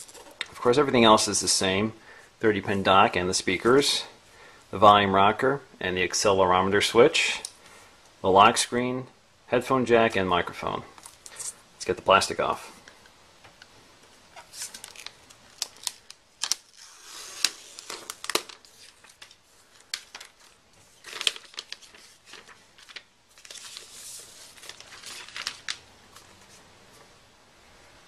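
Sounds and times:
plastic film crinkling: 0:14.3 - 0:26.6.

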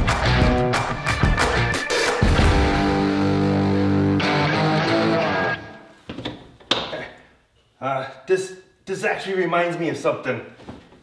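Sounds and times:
guitar chords background music: 0:00.0 - 0:05.9.

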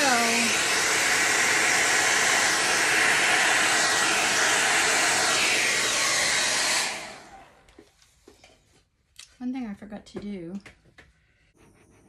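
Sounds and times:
hair dryer running: 0:00.0 - 0:07.9.

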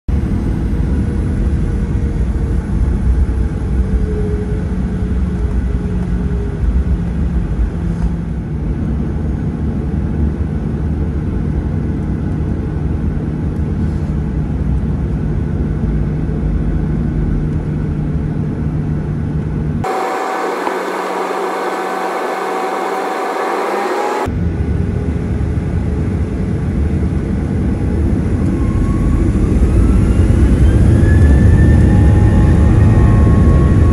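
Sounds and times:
jet engines low rumble: 0:00.1 - 0:33.9
hiss with steady higher tone: 0:19.8 - 0:24.3.

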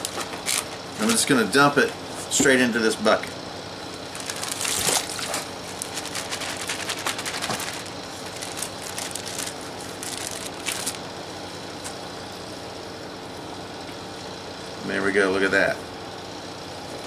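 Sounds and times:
plastic bag crinkling: 0:00.0 - 0:00.7, 0:04.0 - 0:11.0.

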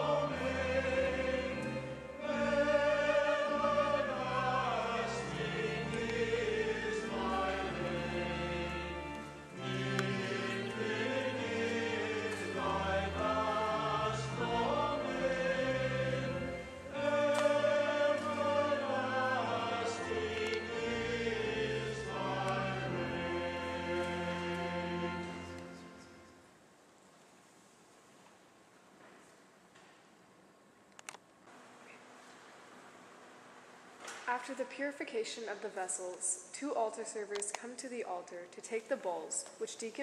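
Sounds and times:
slow choral singing: 0:00.0 - 0:26.4.

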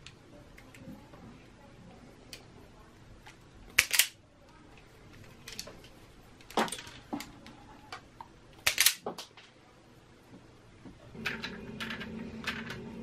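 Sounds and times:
wire stripper clicking and snapping: 0:03.7 - 0:04.2, 0:08.6 - 0:09.3.

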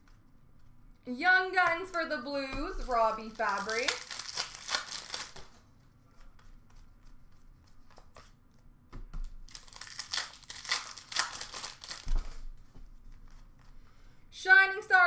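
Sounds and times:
wrapper tearing and crinkling: 0:02.7 - 0:05.6, 0:09.4 - 0:12.5.

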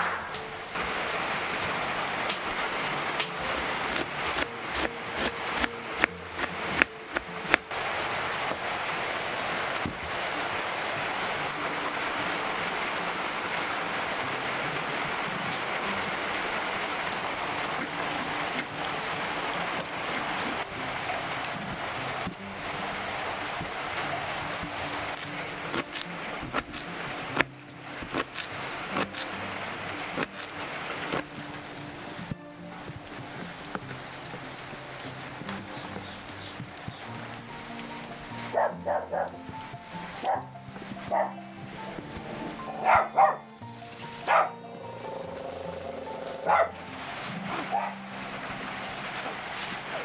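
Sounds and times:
knife chopping on wooden board: 0:03.9 - 0:07.6.

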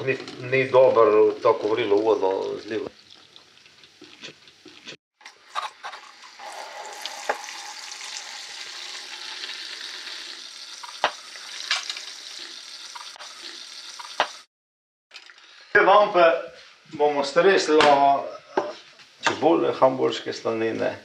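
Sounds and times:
hot water pouring: 0:06.0 - 0:14.5.

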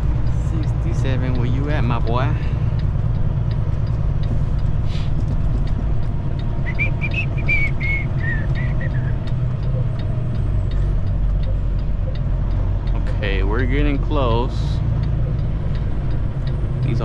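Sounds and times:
diesel engine low rumble: 0:00.0 - 0:17.0
high whistling tones: 0:06.6 - 0:09.2.

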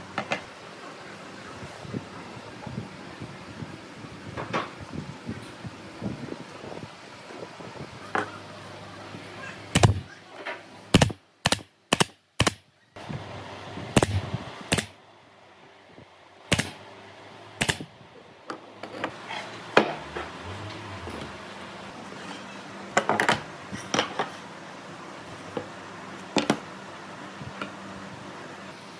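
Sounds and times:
pneumatic nailer shots: 0:09.7 - 0:10.0, 0:10.9 - 0:12.6, 0:14.0 - 0:15.0, 0:16.5 - 0:16.8, 0:17.6 - 0:17.9.

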